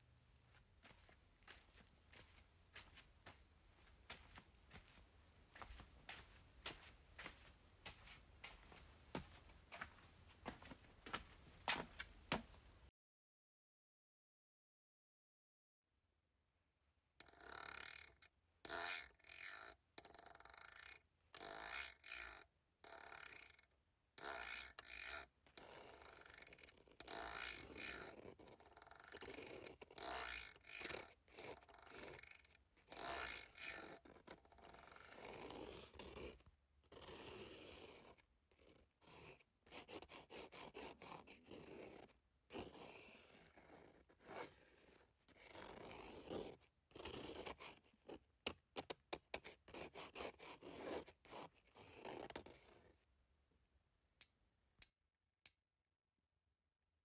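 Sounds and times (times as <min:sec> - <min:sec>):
drawing stick scraping paper: 0:17.2 - 0:23.6, 0:24.2 - 0:53.0.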